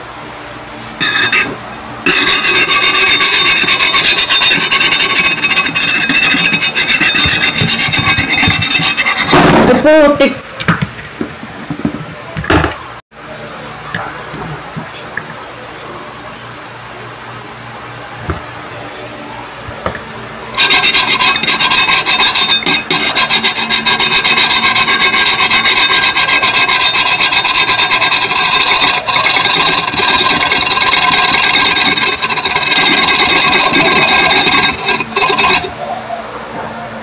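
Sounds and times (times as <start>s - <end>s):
harsh rasping screech: 2.1s - 9.5s, 20.6s - 35.8s.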